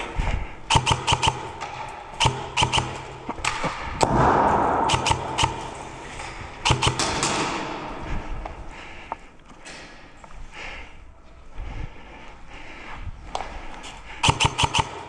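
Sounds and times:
airsoft gunfire cracks: 4.0s - 7.7s.

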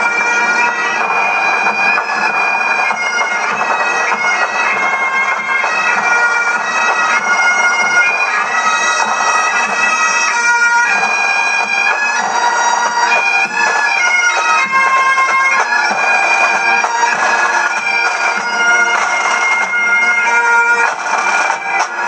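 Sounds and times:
bagpipe band playing: 0.0s - 22.0s.

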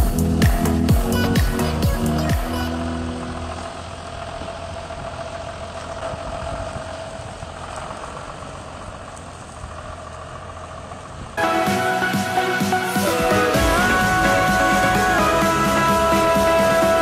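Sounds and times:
tractor diesel engine running: 0.0s - 17.0s
steady whine: 11.4s - 17.0s.

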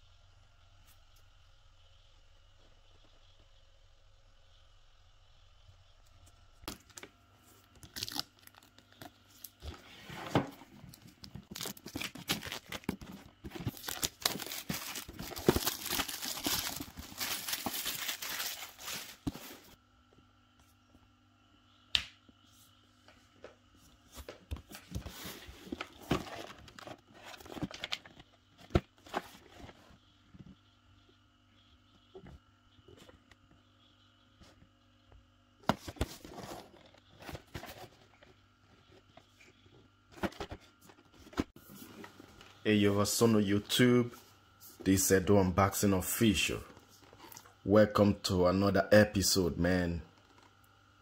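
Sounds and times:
packaging torn and crinkled: 7.8s - 9.0s, 11.4s - 13.0s, 13.6s - 19.2s.

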